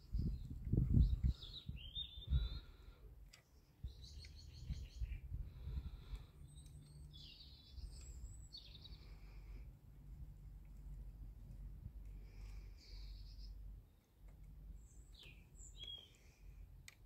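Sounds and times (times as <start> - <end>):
small bird chirping and trilling: 0.0 - 2.8, 3.4 - 9.5, 12.4 - 14.0, 14.7 - 16.5.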